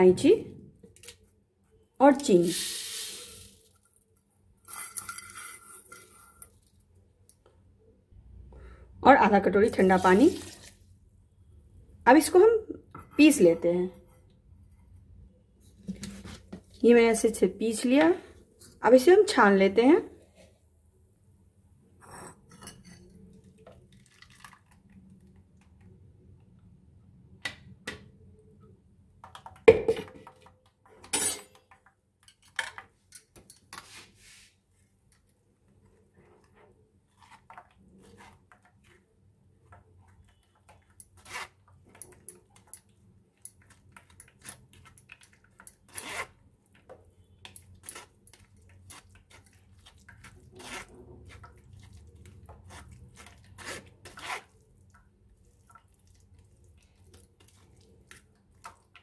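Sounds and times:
metal spoon scraping in strainer: 4.7s - 6.5s.

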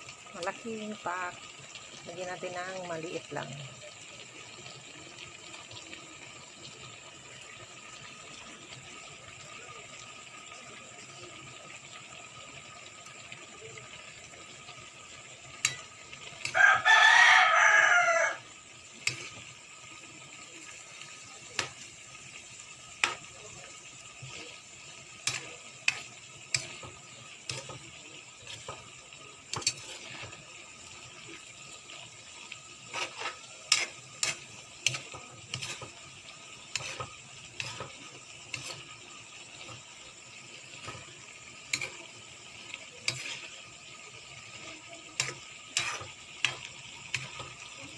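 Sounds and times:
spatula scraping a pan: 14.8s - 40.0s, 40.6s - 47.9s
rooster crowing: 16.5s - 18.5s.

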